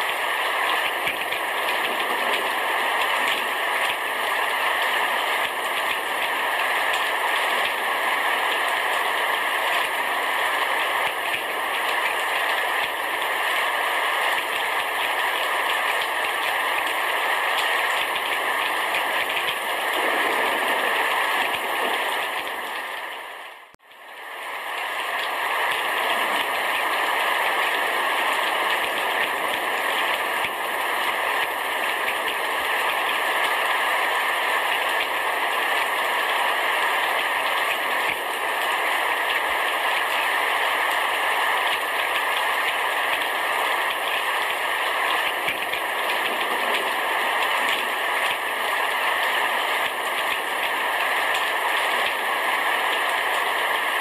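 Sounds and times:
heavy rain on a roof: 0.0 - 54.0.

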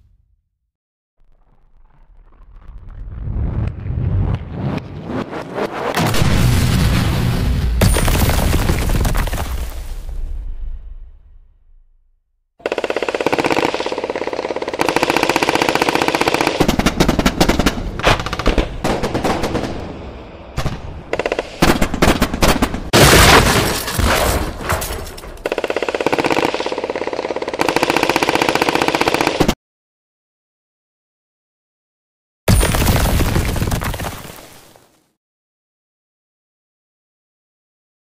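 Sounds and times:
electronic machine-gun sound effect: 12.6 - 16.7.

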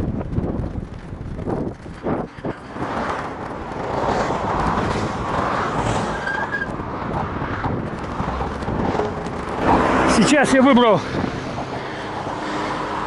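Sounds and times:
cars driving by: 1.9 - 13.0.

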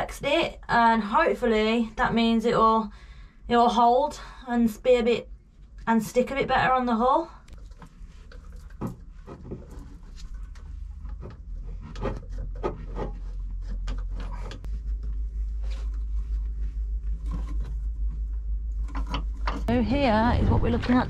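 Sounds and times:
low rumble: 7.3 - 21.0.

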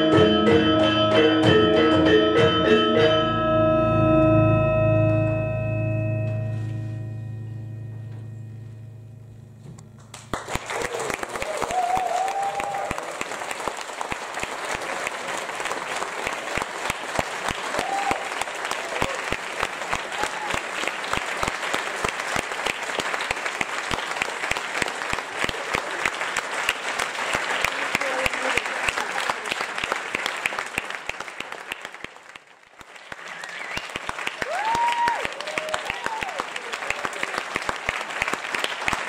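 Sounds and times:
audience applauding: 10.0 - 39.0
audience cheering: 10.3 - 26.3, 32.8 - 39.0.

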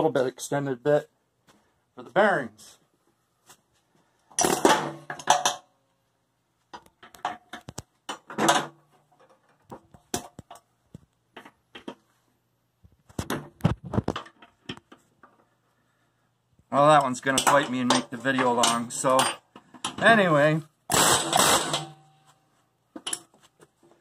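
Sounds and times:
tools clinking on steel: 17.0 - 20.0, 23.0 - 23.3
pneumatic air hammer: 20.9 - 22.0.

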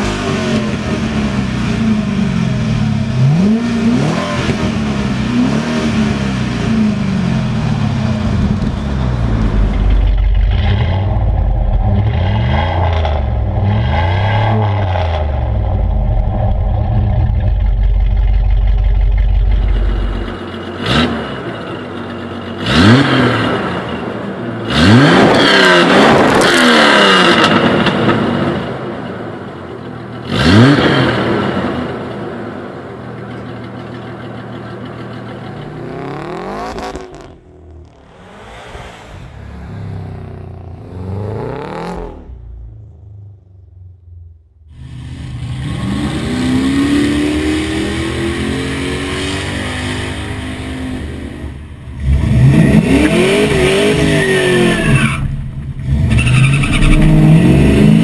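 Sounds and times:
car engine revving: 0.0 - 22.0, 34.9 - 58.0
car engine idling: 4.7 - 12.0, 15.4 - 22.6, 33.0 - 45.3
quieter engine revving softly: 35.3 - 44.8.

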